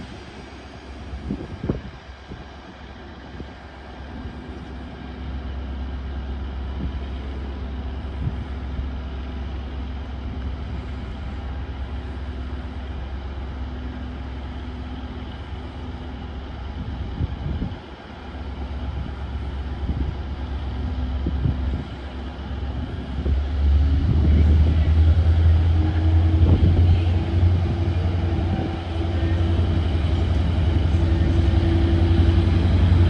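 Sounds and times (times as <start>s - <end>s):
diesel train engine rumbling: 0.0s - 33.0s.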